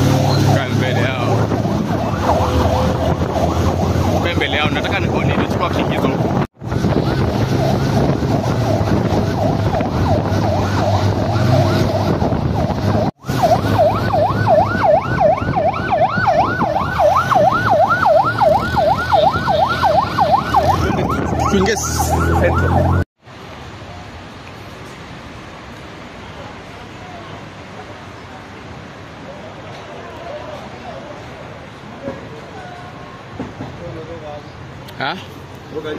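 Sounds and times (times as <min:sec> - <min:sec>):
police siren yelping: 0:00.0 - 0:23.1
street noise: 0:00.0 - 0:35.9.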